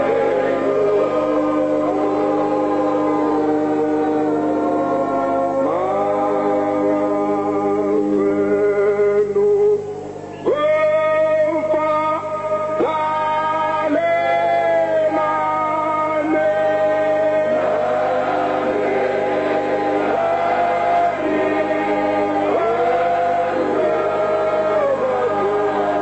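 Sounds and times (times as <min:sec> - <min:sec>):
choir singing: 0:00.0 - 0:08.5, 0:13.0 - 0:26.0
man singing a hymn: 0:05.3 - 0:09.9, 0:10.5 - 0:18.0, 0:22.5 - 0:26.0.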